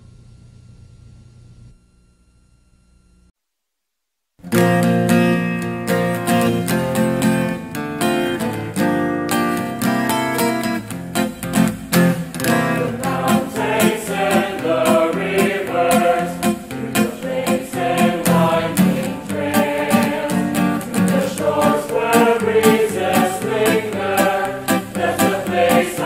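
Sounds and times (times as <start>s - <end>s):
strummed acoustic guitar: 4.4s - 26.0s
voices singing slow melody: 12.4s - 26.0s.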